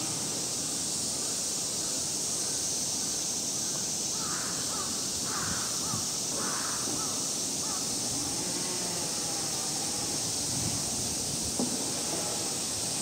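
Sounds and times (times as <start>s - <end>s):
steady high hiss: 0.0s - 13.0s
crow cawing: 4.2s - 7.8s.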